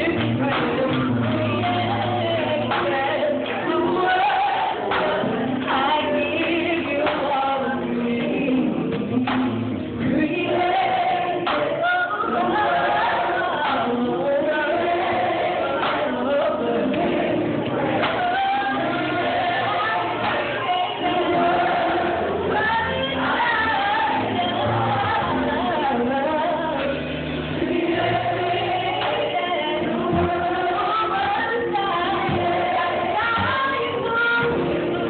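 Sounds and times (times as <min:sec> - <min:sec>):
gospel choir singing: 0:00.0 - 0:35.0.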